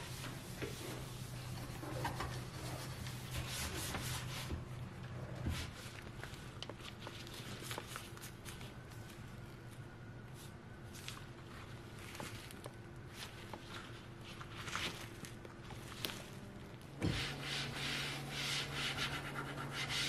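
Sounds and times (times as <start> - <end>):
faint steady hum: 0.0 - 20.0
cloth rustling in gloved hands: 5.6 - 16.9.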